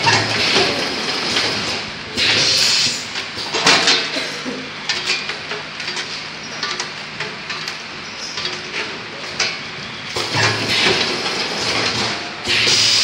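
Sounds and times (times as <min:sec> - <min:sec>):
conveyor humming: 0:00.0 - 0:13.0
pneumatic air hiss: 0:02.2 - 0:03.5, 0:12.4 - 0:13.0.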